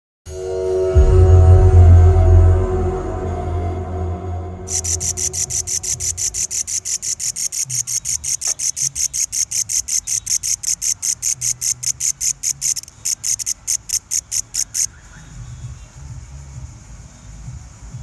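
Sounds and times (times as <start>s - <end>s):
katydid stridulating: 4.7s - 18.0s.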